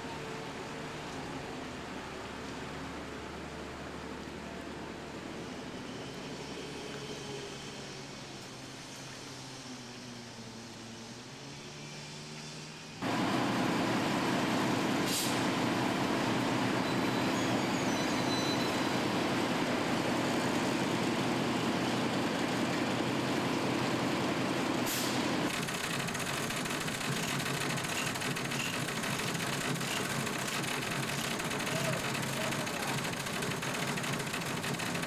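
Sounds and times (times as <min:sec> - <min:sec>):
lorry diesel engine running: 0:13.0 - 0:35.0
sharp air hisses: 0:15.0 - 0:15.5, 0:24.9 - 0:25.2.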